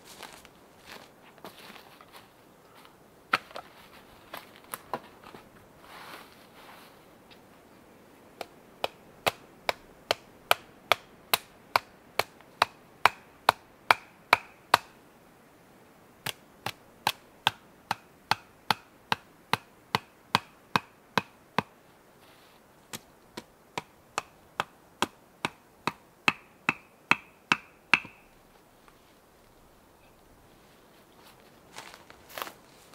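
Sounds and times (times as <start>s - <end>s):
hand tool striking wood: 8.4s - 14.9s, 16.2s - 21.7s, 22.9s - 28.3s.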